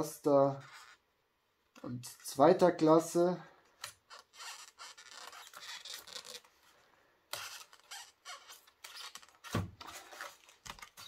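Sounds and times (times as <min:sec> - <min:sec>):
packaging scraping and squeaking: 0:00.5 - 0:01.0, 0:03.8 - 0:06.6, 0:07.3 - 0:11.0.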